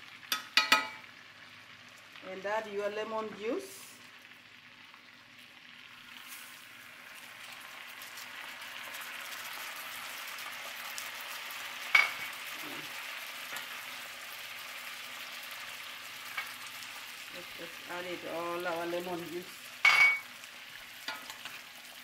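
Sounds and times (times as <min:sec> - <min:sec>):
fish sizzling in butter: 0:00.0 - 0:22.0.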